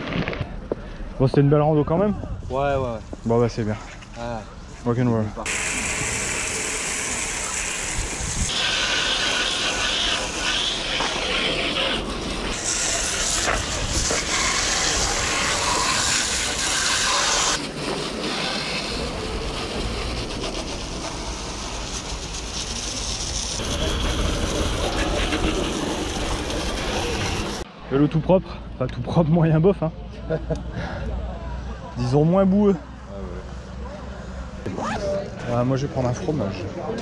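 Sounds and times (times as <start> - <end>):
hose spray hissing on bike: 5.4 - 27.7.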